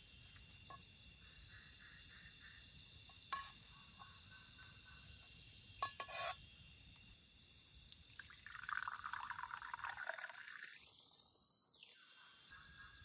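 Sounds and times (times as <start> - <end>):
crickets chirping: 0.0 - 13.0
drink pouring into a cup: 7.9 - 10.9.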